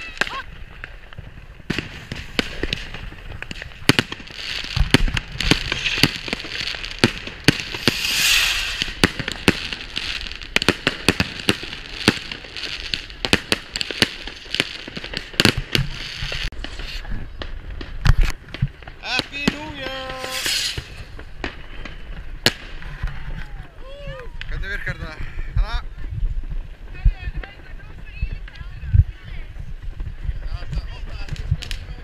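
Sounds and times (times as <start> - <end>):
fireworks hiss: 0.0 - 23.3
fireworks bangs and crackles: 0.0 - 32.0.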